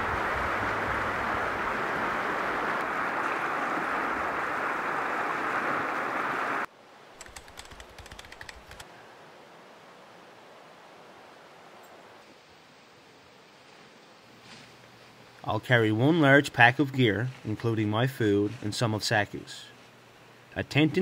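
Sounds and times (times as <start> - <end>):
river rushing over rapids: 0.0 - 6.7
light crackling clicks: 7.2 - 8.9.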